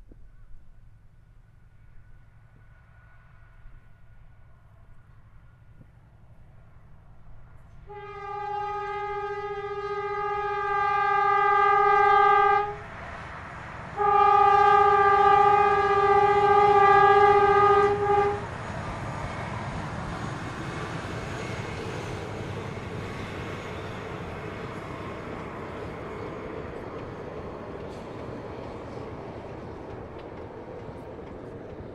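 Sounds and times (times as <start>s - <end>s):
train cars rumbling on track: 0.0s - 31.9s
locomotive horn blasts: 7.9s - 12.8s, 14.0s - 18.5s.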